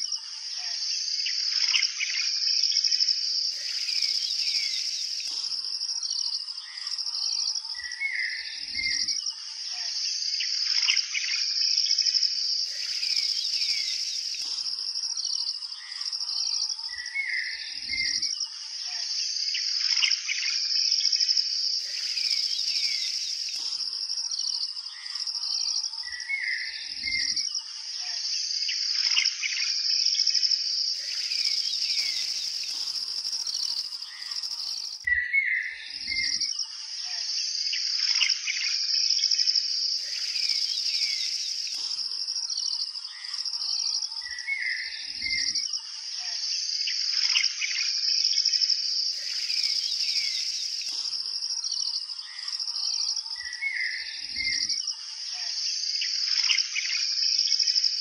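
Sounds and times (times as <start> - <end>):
high-pitched insect chorus: 0.0 - 58.0
birds chirping: 3.4 - 9.2, 12.4 - 18.2, 21.6 - 27.4, 30.8 - 38.7, 39.8 - 45.6, 49.1 - 54.7.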